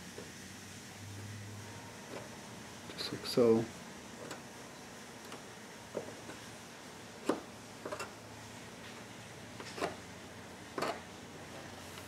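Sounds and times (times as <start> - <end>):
razor blade scraping plastic: 10.8 - 11.1.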